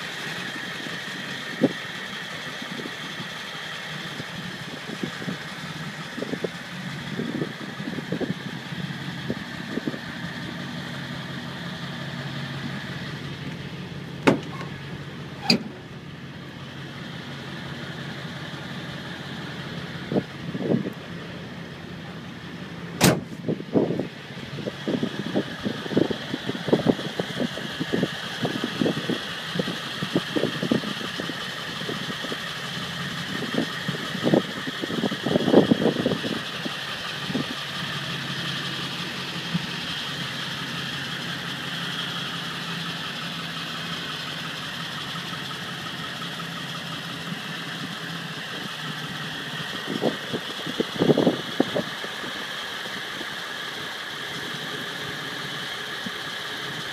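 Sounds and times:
diesel engine idling: 0.0s - 56.9s
sharp click: 23.0s - 23.4s.

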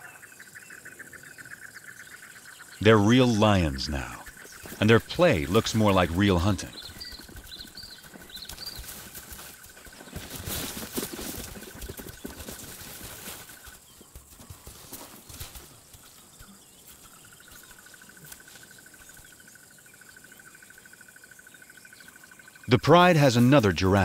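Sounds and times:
lions scuffling on dry ground: 4.3s - 4.8s, 6.7s - 19.4s.

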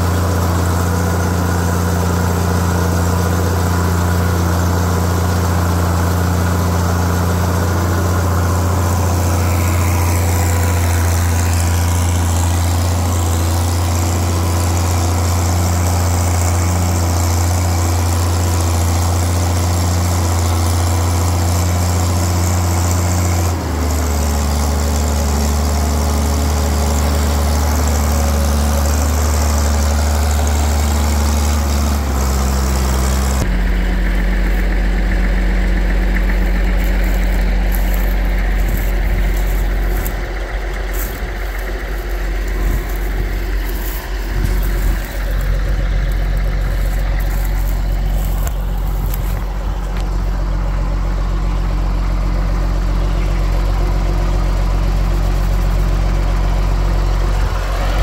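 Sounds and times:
tractor engine under load: 0.0s - 58.0s.

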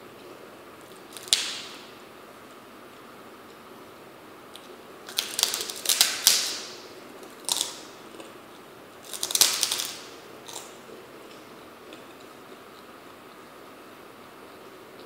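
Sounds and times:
crunching into crisp cracker: 0.8s - 1.8s, 4.5s - 13.5s.

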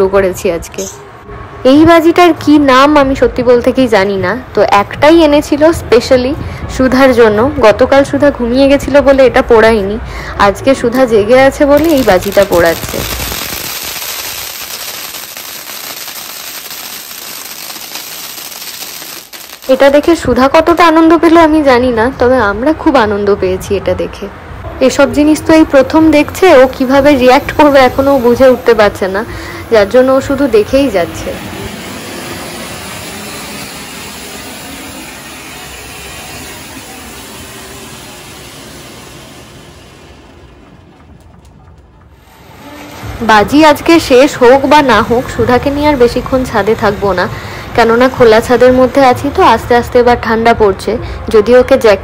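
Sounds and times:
fountain firework hissing and crackling: 11.8s - 20.9s, 26.0s - 50.3s.

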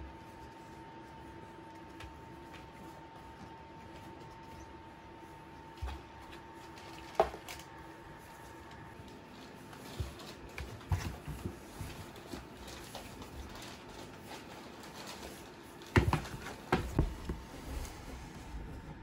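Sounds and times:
cats scuffling in cardboard box: 0.0s - 19.0s.

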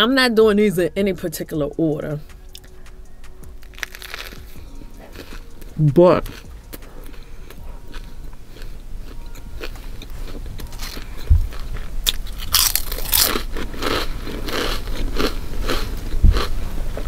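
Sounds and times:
soft chewing: 2.2s - 17.0s
loud crackly crunching: 3.6s - 4.5s, 10.6s - 17.0s.

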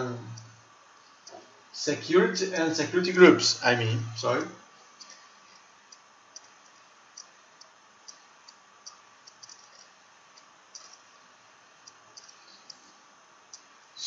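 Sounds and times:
low steady hiss: 0.0s - 14.0s
computer mouse clicks: 5.0s - 11.1s, 11.8s - 12.8s.

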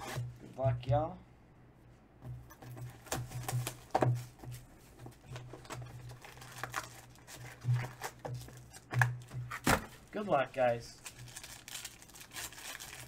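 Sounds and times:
foil wrapper tearing and crinkling: 6.0s - 8.8s, 11.0s - 13.0s.

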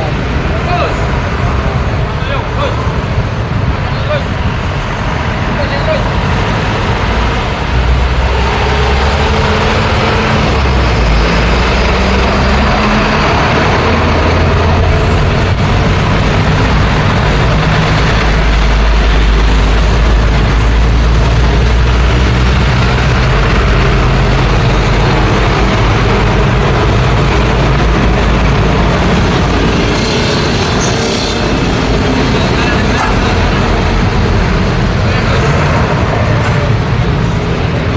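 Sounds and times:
street traffic passing: 0.0s - 37.9s.

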